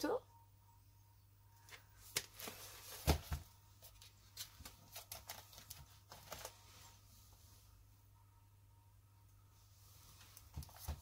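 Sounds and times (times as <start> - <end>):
card pages clicking and rustling: 1.7 - 6.6.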